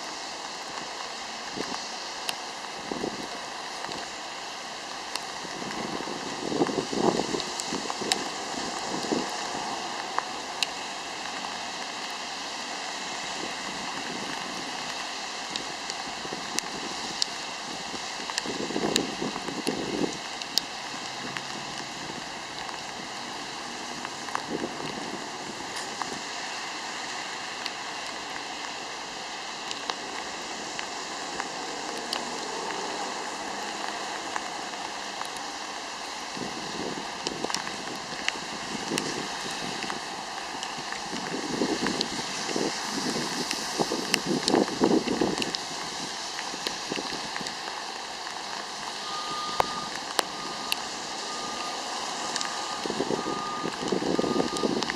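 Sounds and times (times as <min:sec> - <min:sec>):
car tyres on wet road: 0:00.0 - 0:54.9
rain hiss: 0:00.0 - 0:54.9
sharp drip ticks: 0:13.6 - 0:26.2, 0:37.1 - 0:54.9.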